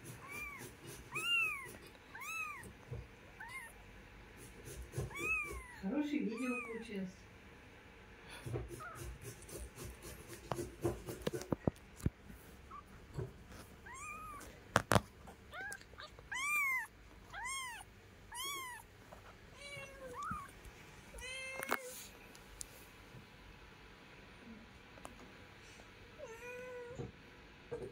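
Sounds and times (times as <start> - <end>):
kittens mewing: 0.0 - 3.8, 4.4 - 7.0, 8.4 - 9.8, 12.6 - 18.9, 19.6 - 22.1
soft taps and rustles: 8.5 - 15.9, 18.6 - 23.3.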